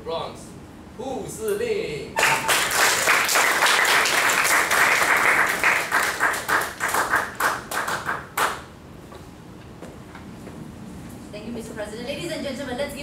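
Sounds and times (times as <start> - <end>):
audience applause: 2.2 - 8.6.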